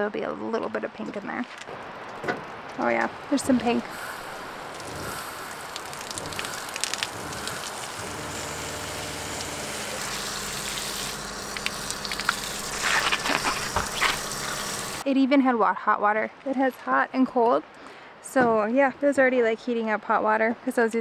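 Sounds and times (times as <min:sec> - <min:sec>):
low steady hum: 0:02.8 - 0:15.1
water spraying on feet and gravel: 0:03.8 - 0:15.0.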